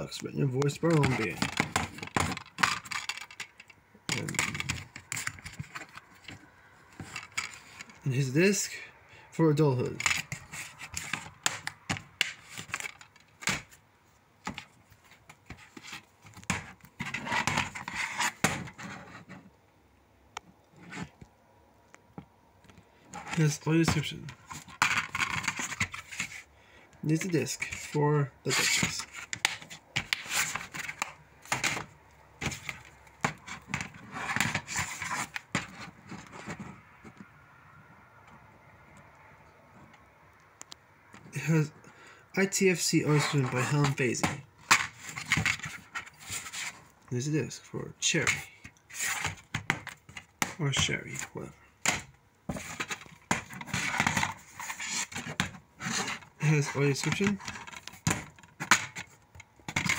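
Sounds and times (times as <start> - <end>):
plastic cases clicking and tapping: 0.6 - 8.0, 10.0 - 13.8, 14.4 - 18.9, 22.0 - 26.4, 28.6 - 37.3, 43.4 - 46.4, 48.2 - 50.9, 51.8 - 56.3, 57.0 - 59.9
plastic cases rubbing and scraping: 0.6 - 8.0, 9.8 - 13.8, 14.4 - 19.5, 20.8 - 21.2, 23.0 - 26.5, 27.1 - 37.3, 42.4 - 47.0, 48.2 - 59.9
plastic case clicks and knocks: 57.0 - 59.9.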